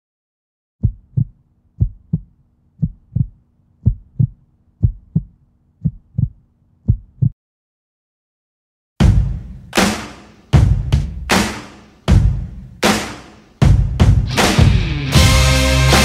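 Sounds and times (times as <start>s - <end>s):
heartbeat thumps: 0.8s - 7.4s.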